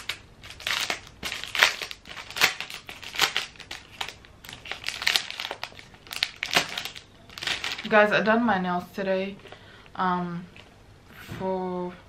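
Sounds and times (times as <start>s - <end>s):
plastic packaging crinkling: 0.0s - 8.1s.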